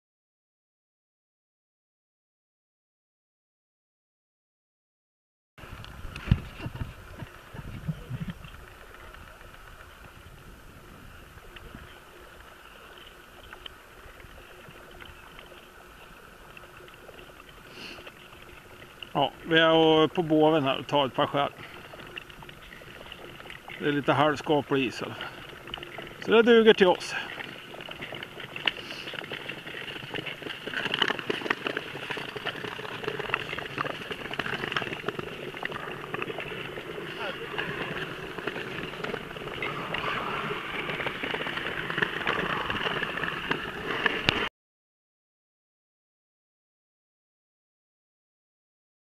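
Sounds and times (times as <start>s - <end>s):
low wind rumble: 5.6s - 16.6s
ice skates scraping on ice: 6.0s - 44.5s.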